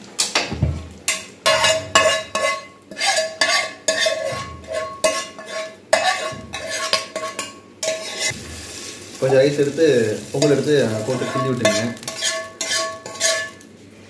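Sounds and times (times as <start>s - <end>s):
steel spoon scraping a frying pan: 1.1s - 8.4s, 10.2s - 13.6s.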